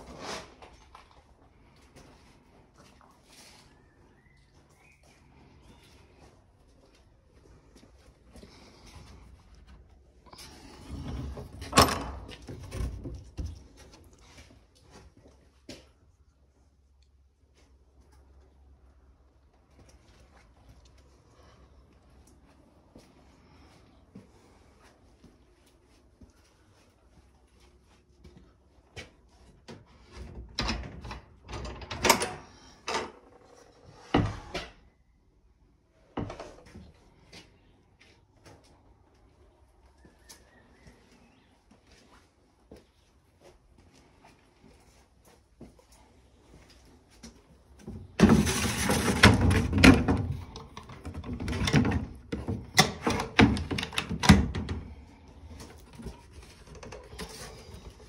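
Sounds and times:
wooden doors knocking and scraping: 48.0s - 55.1s.

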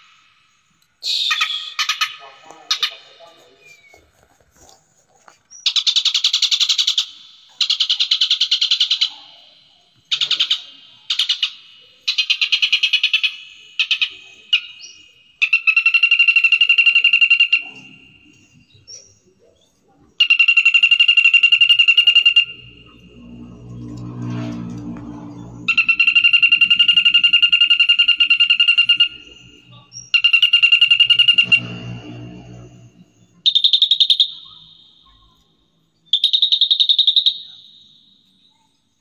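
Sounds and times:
songbird trilling: 1.0s - 4.0s, 5.5s - 23.7s, 25.4s - 35.5s, 36.1s - 38.7s.

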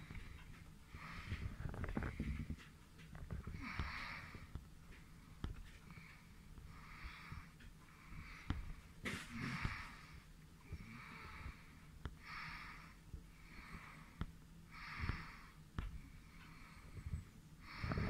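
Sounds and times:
person breathing close to microphone: 0.0s - 18.0s.

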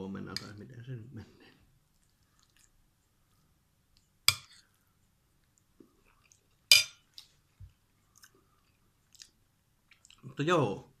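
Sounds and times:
spoon clinking against dish: 6.7s - 7.0s.

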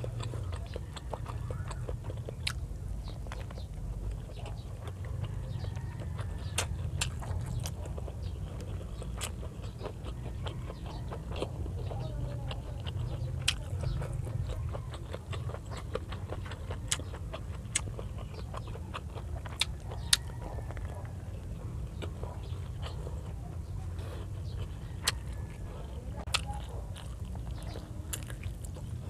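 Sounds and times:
chewing with wet lip smacks: 0.0s - 29.0s.

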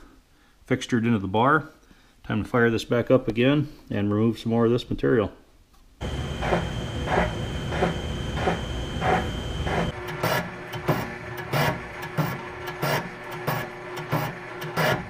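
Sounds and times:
low drive hum: 6.0s - 14.5s
metal scraping of milling cutter: 6.0s - 15.0s.

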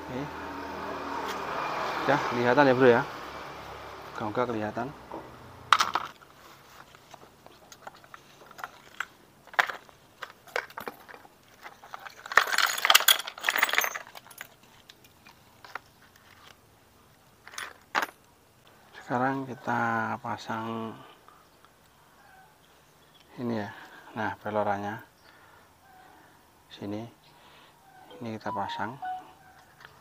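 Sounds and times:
metal parts clinking and clattering: 7.7s - 16.4s, 17.4s - 18.3s.

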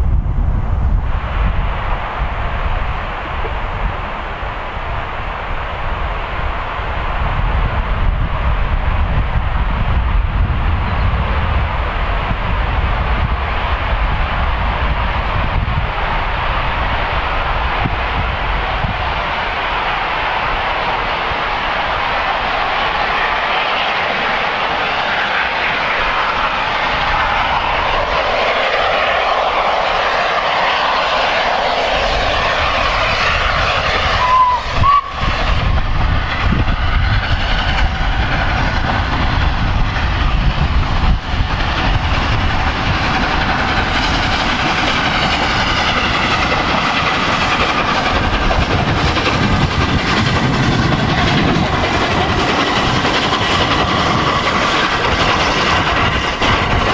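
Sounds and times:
steam locomotive exhaust: 0.0s - 56.9s
steam locomotive whistle: 32.6s - 35.5s.

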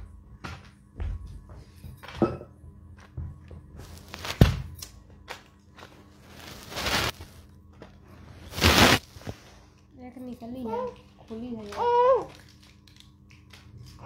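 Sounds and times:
rustling swish: 6.3s - 7.2s, 8.5s - 9.4s.

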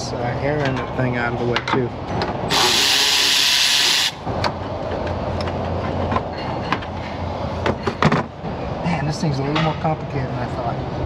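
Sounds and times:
compressed air hiss: 2.5s - 4.2s.

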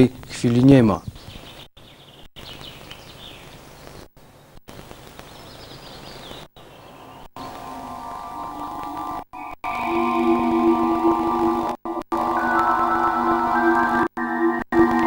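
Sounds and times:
steady outdoor hiss: 0.0s - 15.0s
small birds chirping: 0.1s - 8.4s.

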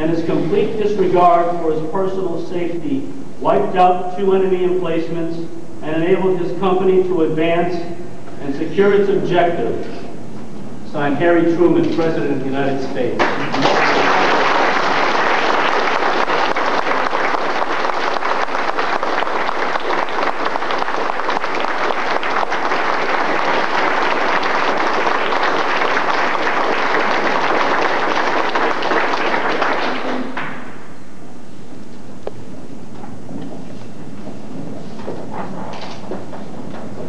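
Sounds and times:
audience applauding: 13.2s - 30.8s.

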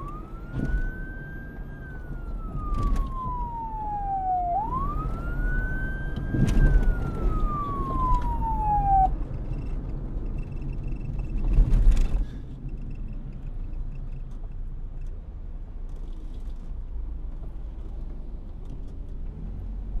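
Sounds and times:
police siren wailing: 0.0s - 9.3s.

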